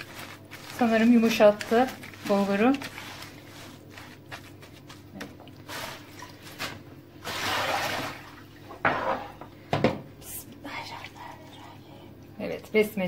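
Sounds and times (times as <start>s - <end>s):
hands squishing wet meat: 0.0s - 6.8s
rustling noise: 0.0s - 6.8s.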